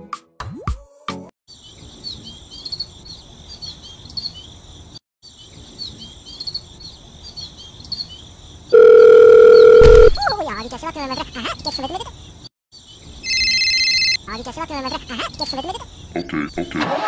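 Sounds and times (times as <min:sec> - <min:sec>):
birds chirping: 0:01.5 - 0:16.7
loud steady beep tone: 0:08.8 - 0:10.2.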